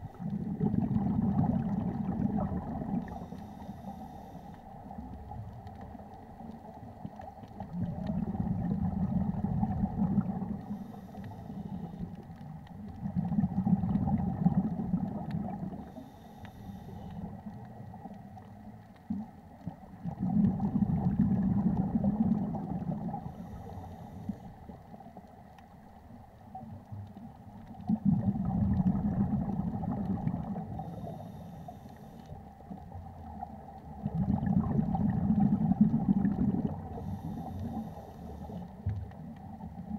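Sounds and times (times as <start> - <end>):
exhaled bubbles rumbling underwater: 0.0 - 39.9
regulator hiss on inhale: 3.0 - 4.8, 10.3 - 12.2, 15.7 - 17.5, 23.1 - 24.8, 30.6 - 32.5, 36.7 - 38.9.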